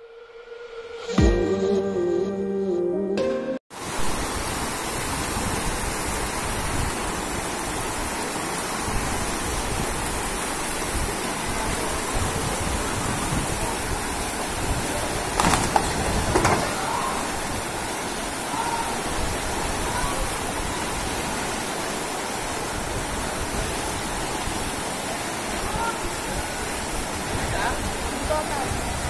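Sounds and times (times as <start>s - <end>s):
heavy rain and flooding water: 3.7s - 29.0s.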